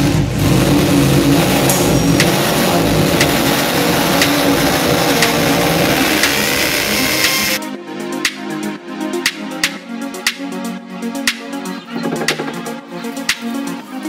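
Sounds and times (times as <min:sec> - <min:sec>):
impact drill boring into masonry: 0:05.2 - 0:07.6.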